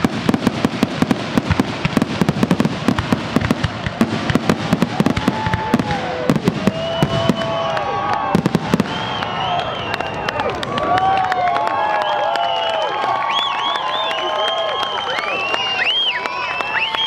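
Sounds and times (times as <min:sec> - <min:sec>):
fireworks bangs and crackling: 0:00.0 - 0:11.9
whistling fireworks: 0:00.0 - 0:17.0.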